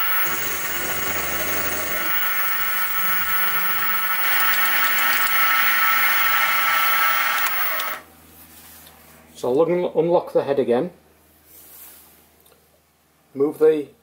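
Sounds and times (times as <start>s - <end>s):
milling machine cutting steel: 0.0s - 8.0s.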